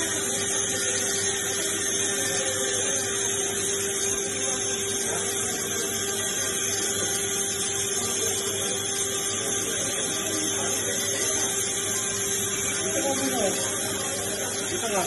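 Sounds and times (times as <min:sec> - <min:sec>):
electric machine hum: 0:00.0 - 0:15.0.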